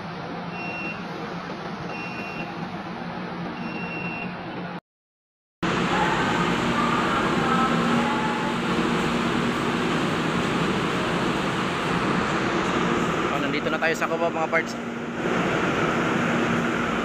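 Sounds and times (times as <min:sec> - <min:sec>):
metro train running noise: 0:00.0 - 0:04.8, 0:05.6 - 0:17.0
short electronic beeps: 0:00.6 - 0:01.0, 0:01.9 - 0:02.5, 0:03.6 - 0:04.4
echoing station platform noise: 0:05.6 - 0:17.0
train whine: 0:05.6 - 0:17.0.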